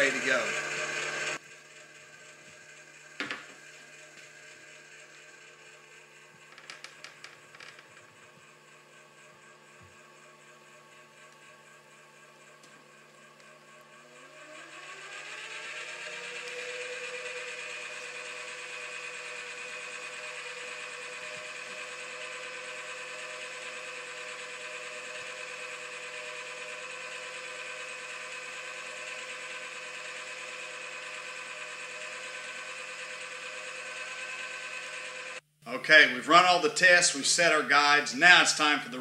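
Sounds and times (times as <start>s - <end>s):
machine feed rollers whining: 0.0s - 39.0s.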